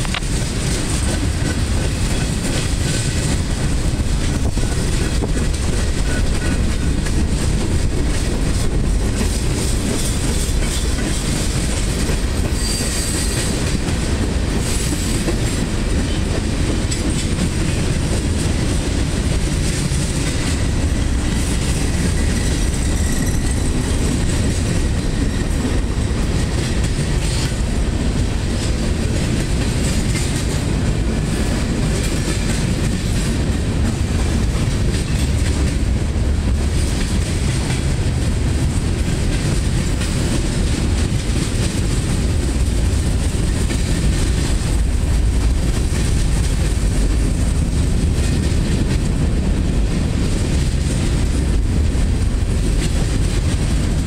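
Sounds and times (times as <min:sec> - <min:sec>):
clickety-clack over rail joints: 0:00.0 - 0:54.0
freight train wheels rumbling on rail: 0:00.0 - 0:54.0
high-pitched wheel squeal: 0:12.5 - 0:13.4, 0:22.8 - 0:23.7.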